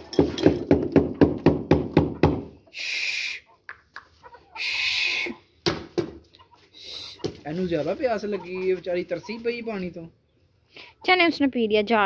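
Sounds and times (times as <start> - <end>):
hens squawking: 2.1 - 5.6, 6.2 - 11.3.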